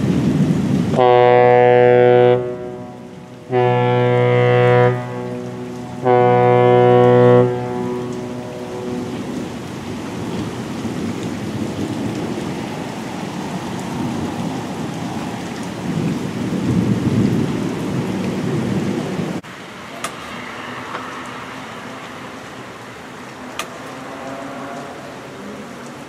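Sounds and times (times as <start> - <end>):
thunder rumbling: 0.0 - 19.4
steady rain: 0.0 - 26.0.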